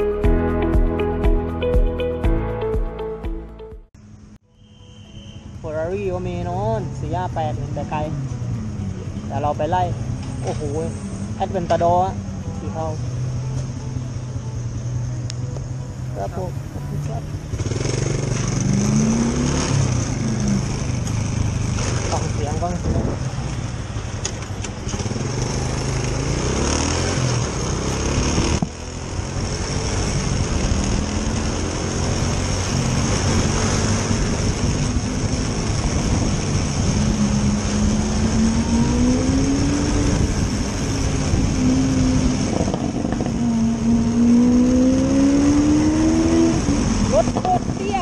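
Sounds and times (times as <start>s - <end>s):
scooter engine accelerating: 17.0s - 48.0s
wind rushing over microphone: 17.8s - 26.4s, 27.1s - 48.0s.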